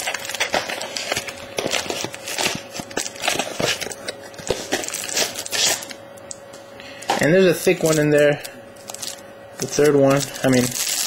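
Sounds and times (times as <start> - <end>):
plastic wrapper crinkling: 0.0 - 6.0, 7.8 - 11.0.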